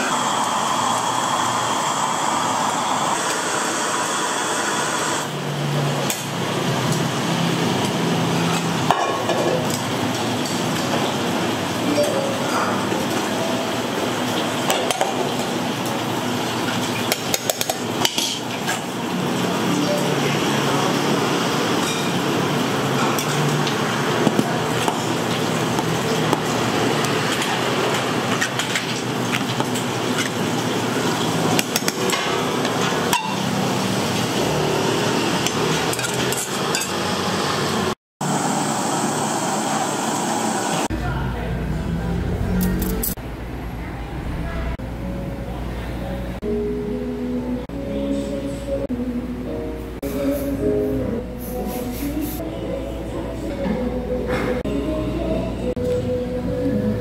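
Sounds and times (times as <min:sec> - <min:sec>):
pots and dishes clattering: 0:08.5 - 0:11.2, 0:14.3 - 0:15.5, 0:16.7 - 0:18.9, 0:21.8 - 0:22.3, 0:27.3 - 0:30.5, 0:31.2 - 0:33.6, 0:35.5 - 0:37.0.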